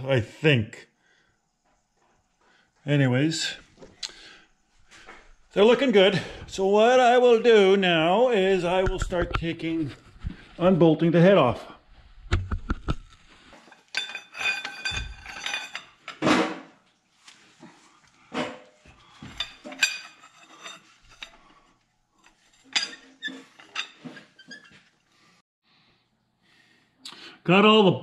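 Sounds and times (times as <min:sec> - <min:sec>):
wrench clinking on engine bolts: 0:13.9 - 0:16.0, 0:19.2 - 0:21.4.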